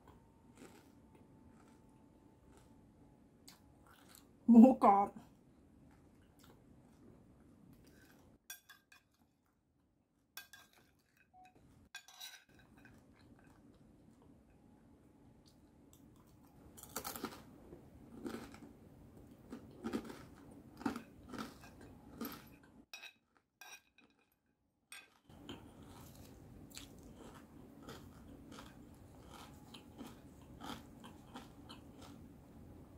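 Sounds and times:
crunchy chewing: 0:00.0 - 0:04.3, 0:16.2 - 0:22.7, 0:25.3 - 0:32.4
metal spoon clinking on plate: 0:08.5 - 0:09.2, 0:10.4 - 0:13.0.

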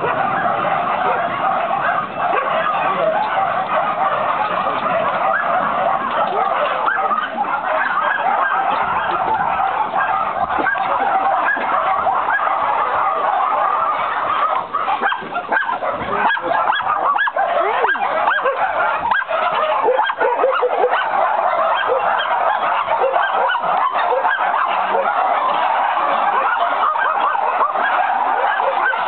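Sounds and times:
dogs barking and yelping: 0:00.0 - 0:29.0.

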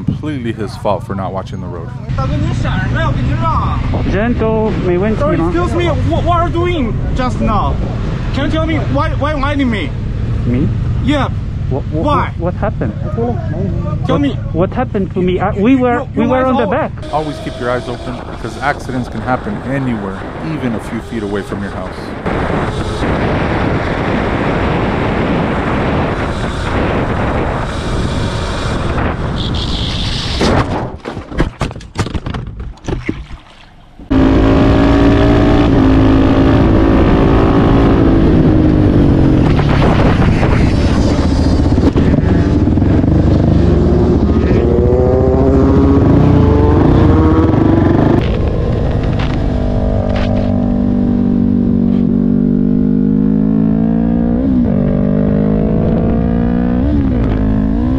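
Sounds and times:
rushing wind: 0:02.0 - 0:31.4, 0:33.7 - 0:57.9
motorcycle engine droning: 0:15.7 - 0:30.0, 0:34.0 - 0:57.9
crash knocks and clatter: 0:30.4 - 0:33.3
motorcycle engine revving: 0:34.0 - 0:57.9
tyre noise on wet road: 0:48.1 - 0:50.8.

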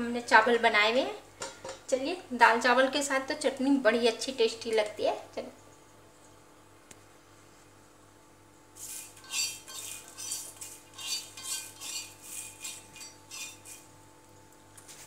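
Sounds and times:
utensil scraping on iron pan: 0:08.8 - 0:13.9.

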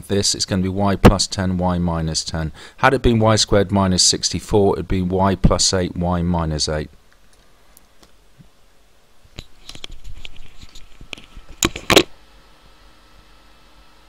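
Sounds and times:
small clicks and rustling: 0:09.3 - 0:12.1.

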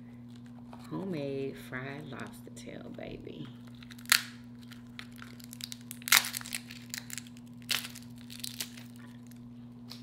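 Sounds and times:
steady low hum: 0:00.0 - 0:10.0
crunching bites of fried food: 0:03.7 - 0:10.0.

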